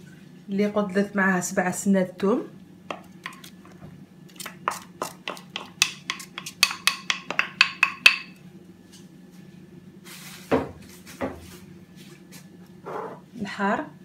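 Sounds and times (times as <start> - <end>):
wooden spoon scraping a bowl: 12.8 - 13.3.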